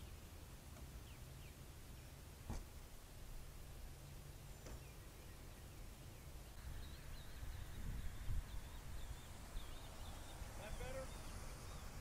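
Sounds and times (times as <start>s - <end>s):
bird chirping: 0.0s - 2.7s, 3.7s - 12.0s
dull thumps: 2.4s - 2.8s.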